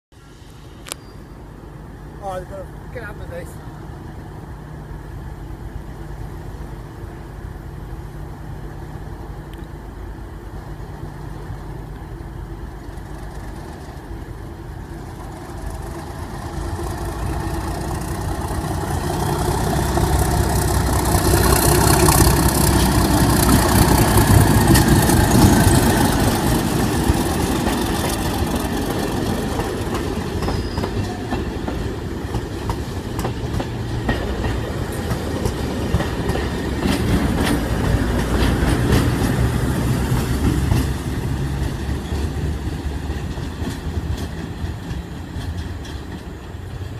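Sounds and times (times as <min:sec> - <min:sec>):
diesel locomotive engine: 0:00.1 - 0:46.9
train wheels clicking over rail joints: 0:11.4 - 0:46.9.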